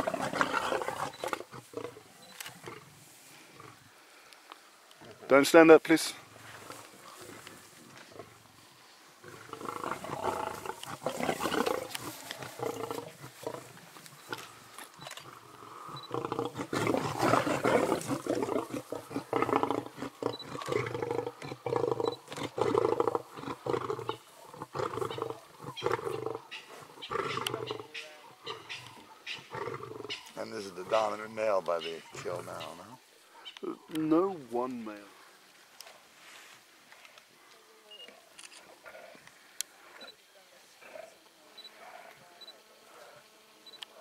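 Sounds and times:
lions snarling and growling: 0:00.0 - 0:03.9, 0:09.2 - 0:31.2, 0:38.6 - 0:40.1.

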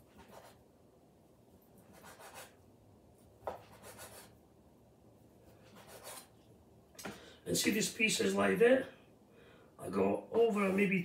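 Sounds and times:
knife scraping on cutting board: 0:05.6 - 0:06.4.

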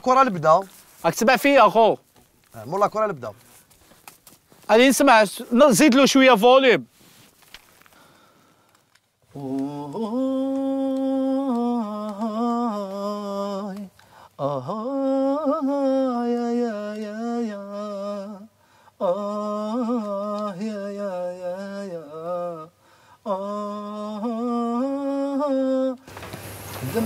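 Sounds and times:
singer breathing: 0:07.8 - 0:08.9, 0:14.0 - 0:14.4, 0:18.5 - 0:19.0, 0:22.7 - 0:23.3
man singing ornamented phrases: 0:09.3 - 0:26.1, 0:26.8 - 0:27.0.

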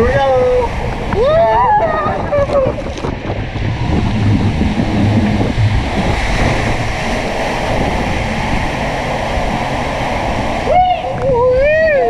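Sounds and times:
water rushing under raft: 0:00.0 - 0:12.0
wind buffeting microphone: 0:00.0 - 0:12.0.

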